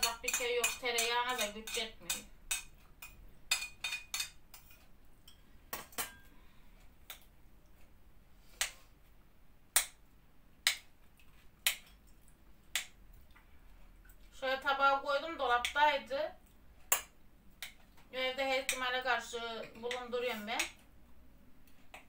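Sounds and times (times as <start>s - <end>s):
spoon clinking against glass bowl: 0.0s - 6.3s.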